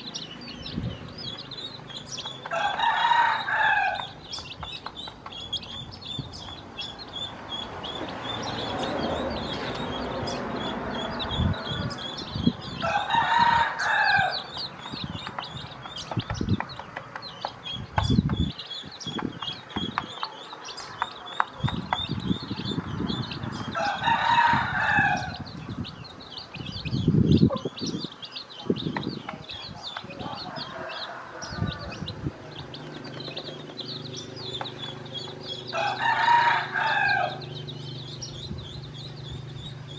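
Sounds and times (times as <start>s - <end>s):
chicks peeping: 0.0s - 39.9s
rooster crowing: 2.5s - 4.2s, 12.7s - 14.5s, 23.7s - 25.5s, 30.2s - 32.2s, 35.7s - 37.6s.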